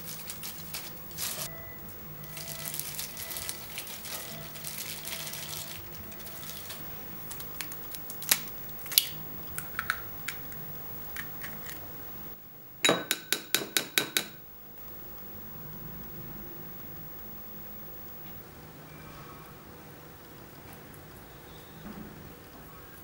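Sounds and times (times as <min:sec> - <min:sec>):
hands tapping ceramic plate: 0:12.8 - 0:14.4
plastic tapping glass bowl: 0:12.8 - 0:14.4.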